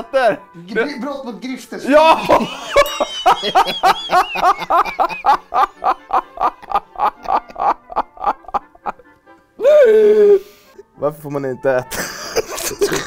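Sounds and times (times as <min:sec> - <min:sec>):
man laughing: 0:02.0 - 0:10.4, 0:11.9 - 0:13.0.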